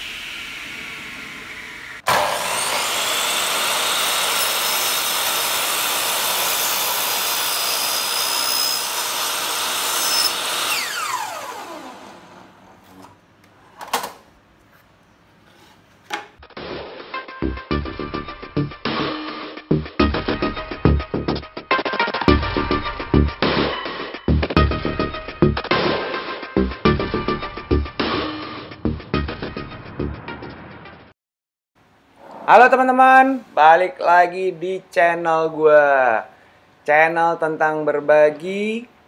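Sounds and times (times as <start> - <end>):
motor winding down whine: 0.0 - 4.0, 10.1 - 12.5
miter saw cutting wood: 0.0 - 12.6.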